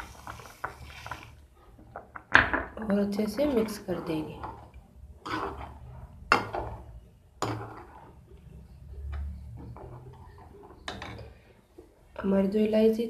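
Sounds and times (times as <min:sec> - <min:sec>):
ladle scraping a steel pot: 0:03.5 - 0:11.6.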